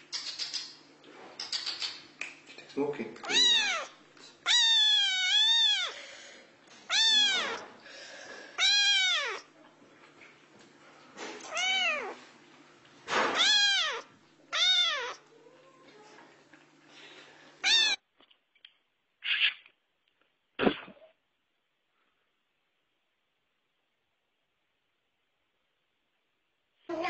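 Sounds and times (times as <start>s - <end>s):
kitten meowing: 3.3s - 6.0s, 6.9s - 7.7s, 8.6s - 9.5s, 11.4s - 12.2s, 13.3s - 15.6s, 17.6s - 18.0s.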